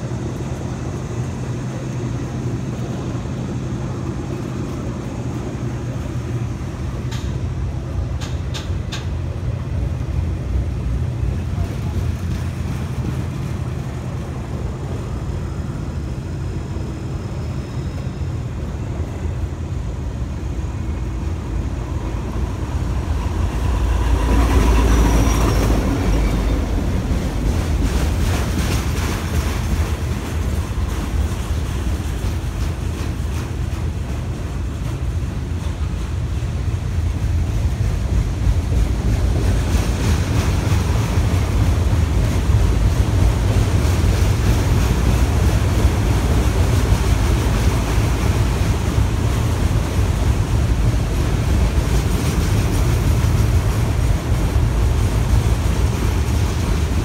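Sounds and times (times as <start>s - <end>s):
diesel locomotives passing: 0.0s - 57.0s
freight train rumble and wheel clatter: 0.0s - 57.0s.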